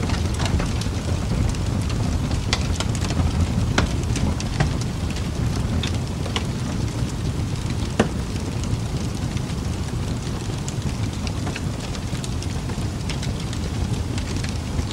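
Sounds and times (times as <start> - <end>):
raindrops ticking: 0.0 - 14.9
steady rain hiss: 0.0 - 14.9
low rumble: 13.6 - 14.9.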